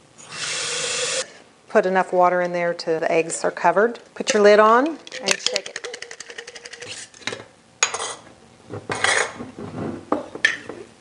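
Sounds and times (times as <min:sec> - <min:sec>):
eggs rattling in glass jar: 0:04.4 - 0:07.0.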